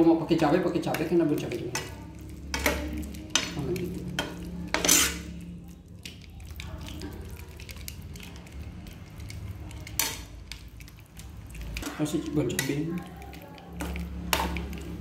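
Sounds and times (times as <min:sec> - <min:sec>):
soft sizzle: 0:00.0 - 0:15.0
utensil scraping sauce in pan: 0:00.4 - 0:15.0.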